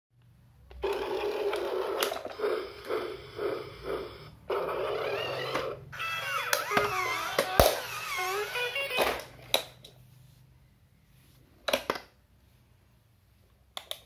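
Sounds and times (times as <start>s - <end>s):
toy train motor hum: 0.8s - 8.8s.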